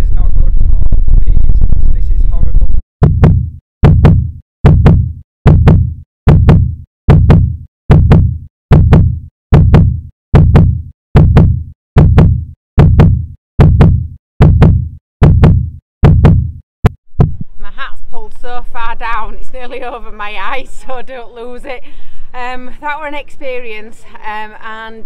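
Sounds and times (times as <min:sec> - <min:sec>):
heartbeat: 0:03.0 - 0:17.6.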